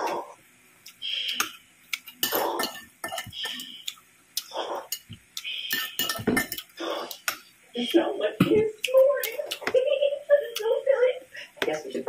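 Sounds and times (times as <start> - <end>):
chewing and mouth noises: 0.8 - 5.8, 6.6 - 7.4
cutlery clinking on a ceramic plate: 2.1 - 3.7, 5.7 - 6.8.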